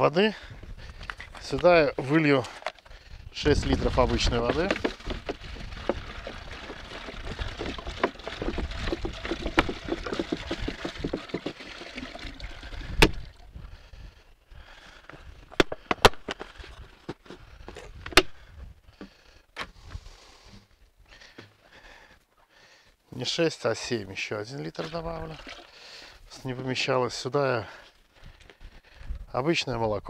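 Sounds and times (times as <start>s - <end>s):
water pouring into a container: 3.6s - 13.6s, 24.6s - 26.1s.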